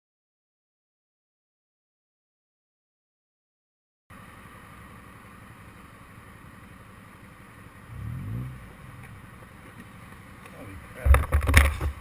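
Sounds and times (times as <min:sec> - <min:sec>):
motorcycle engine idling: 0:04.2 - 0:12.0
motorcycle throttle rev: 0:07.9 - 0:09.4.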